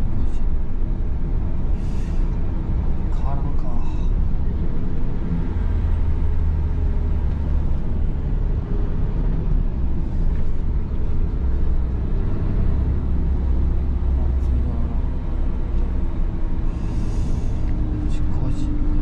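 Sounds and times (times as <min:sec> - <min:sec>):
truck engine and road rumble: 0:00.0 - 0:19.0.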